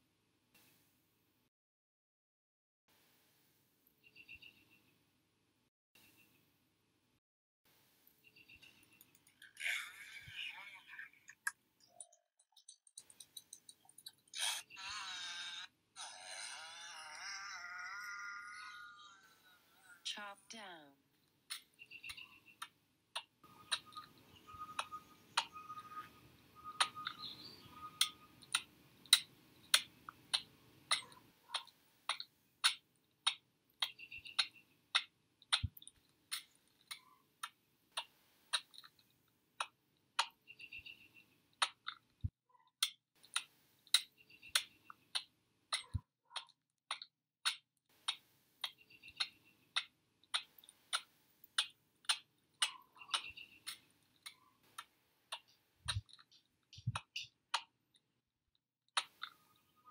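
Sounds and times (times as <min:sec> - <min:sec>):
sharp regular clicks: 0:08.6 - 0:09.5, 0:11.3 - 0:14.4
faint higher chirps: 0:23.4 - 0:28.6.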